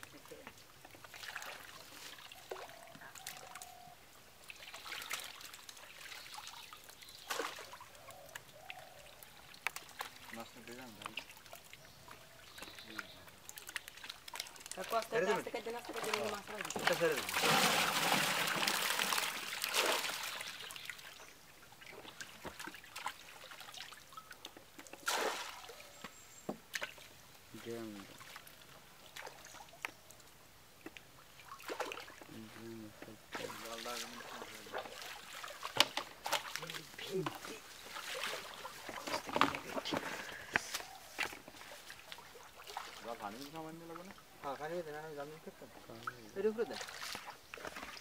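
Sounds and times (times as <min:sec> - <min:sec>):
small splashes: 0:00.0 - 0:32.6, 0:33.3 - 0:44.3, 0:45.7 - 0:48.0
water trickling and dripping: 0:00.0 - 0:48.0
water pouring off scoop: 0:15.9 - 0:20.7.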